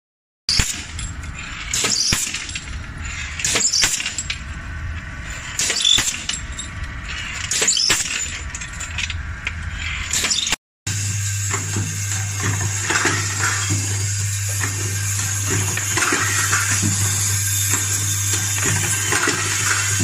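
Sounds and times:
sharp metal strike with hiss: 0:00.5 - 0:00.9
metal parts clinking: 0:00.5 - 0:10.6, 0:14.6 - 0:20.0
low machine hum: 0:00.8 - 0:10.1, 0:10.9 - 0:20.0.

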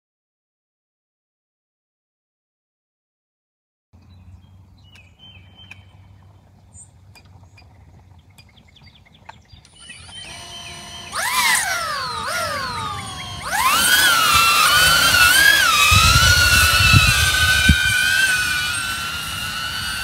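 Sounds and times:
bird chirps: 0:04.0 - 0:11.4
drone motors whining: 0:09.6 - 0:20.0.

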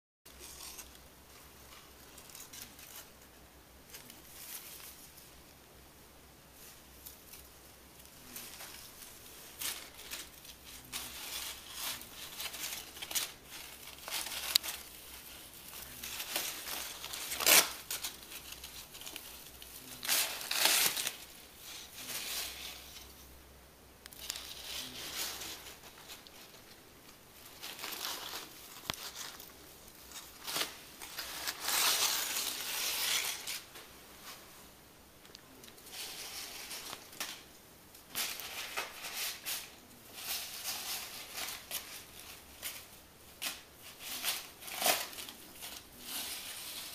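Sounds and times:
paper tissue crinkling: 0:06.6 - 0:23.3, 0:24.2 - 0:34.6, 0:35.7 - 0:46.9.

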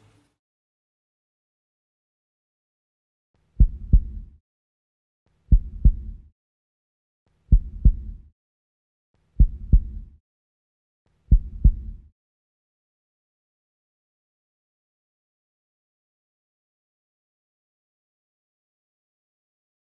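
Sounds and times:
double low thumps: 0:03.6 - 0:04.3, 0:05.5 - 0:06.3, 0:07.5 - 0:08.3, 0:09.4 - 0:10.2, 0:11.3 - 0:12.1.

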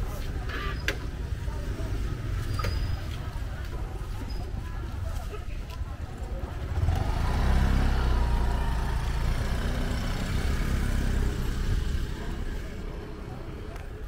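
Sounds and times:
motor scooter engine running: 0:06.4 - 0:13.3.

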